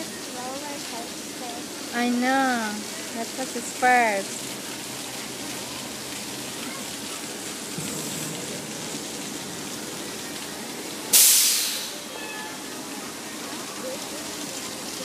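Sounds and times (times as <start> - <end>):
faint voices: 0.0 - 11.1, 11.8 - 15.0
steady rushing noise: 7.6 - 11.3
sudden loud rush of noise: 7.7 - 12.1.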